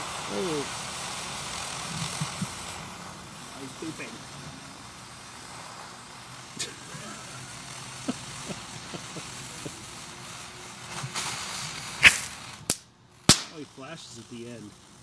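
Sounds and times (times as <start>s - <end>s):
firework fountain hissing: 0.0s - 15.0s
small pops: 8.0s - 13.7s
sharp loud cracks: 10.9s - 13.7s.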